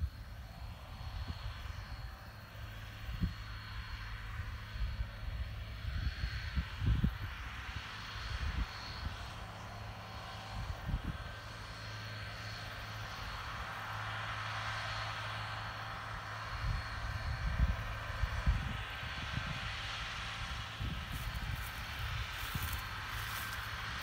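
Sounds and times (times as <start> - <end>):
wind rumble on microphone: 0.0 - 11.4, 16.4 - 24.0
tractor diesel engine drone: 0.0 - 24.0.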